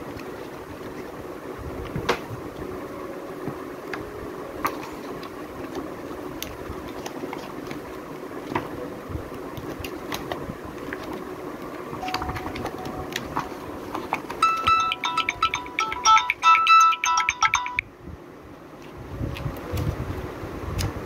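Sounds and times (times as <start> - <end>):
steady background hum: 0.0 - 21.0
short electronic tune: 14.4 - 17.8.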